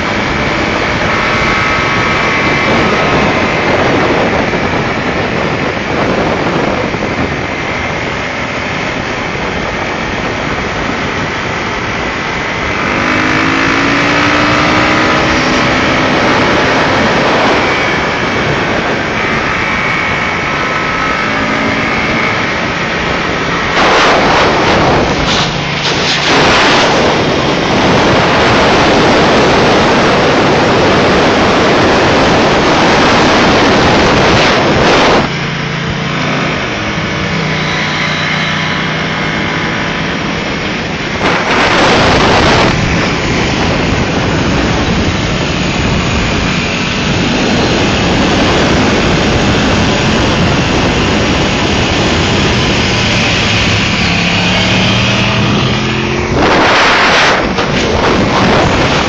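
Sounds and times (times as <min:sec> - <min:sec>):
motorcycle engine at speed: 0:00.0 - 0:59.0
wind buffeting microphone: 0:00.0 - 0:59.0.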